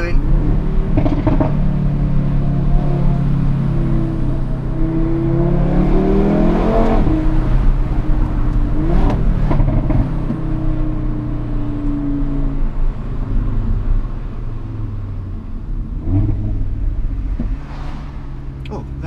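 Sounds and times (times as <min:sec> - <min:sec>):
car engine accelerating hard: 0:00.2 - 0:11.2.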